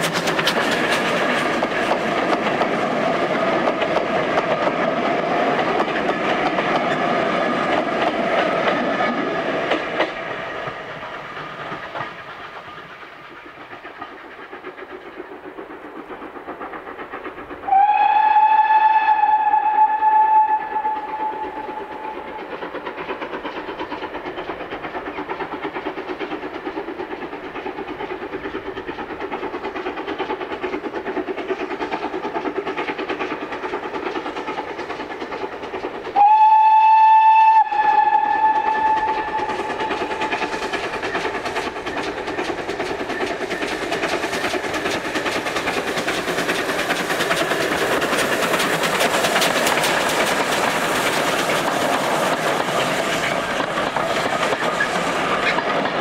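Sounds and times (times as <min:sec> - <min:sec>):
locomotive exhaust beats: 0:00.0 - 0:56.0
train running on rails: 0:00.0 - 0:56.0
steam locomotive whistle: 0:17.6 - 0:22.2, 0:36.2 - 0:40.3.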